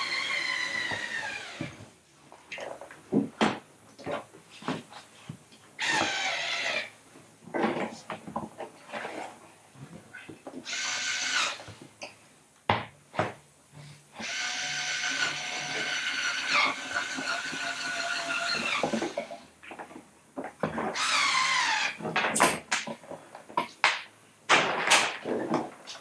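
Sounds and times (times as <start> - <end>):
electric screwdriver whirring: 14.2 - 19.2.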